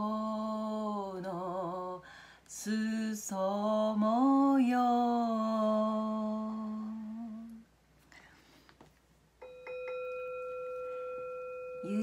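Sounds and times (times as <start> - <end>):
steady bell-like tone: 9.4 - 12.0
woman singing long note: 11.8 - 12.0.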